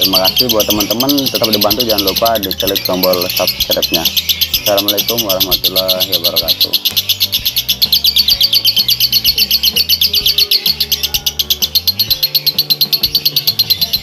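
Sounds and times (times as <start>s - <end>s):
lovebird chattering in fast chirps: 0.0s - 14.0s.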